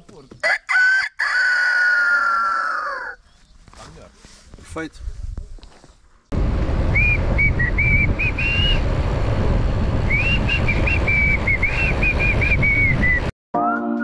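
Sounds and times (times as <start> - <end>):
wind rumble on microphone: 4.5 - 13.3
person whistling a tune: 10.1 - 14.0.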